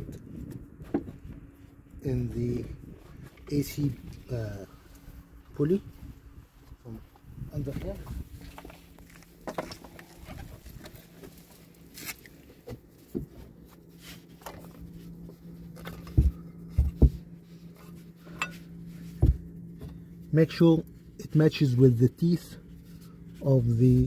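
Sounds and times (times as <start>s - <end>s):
faint steady hum: 0.0s - 24.0s
dull thumps: 15.8s - 17.4s, 19.0s - 20.1s.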